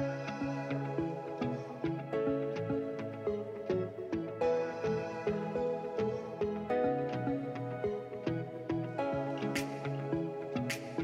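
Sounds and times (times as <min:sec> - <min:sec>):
gentle melody of single notes: 0:00.0 - 0:11.0.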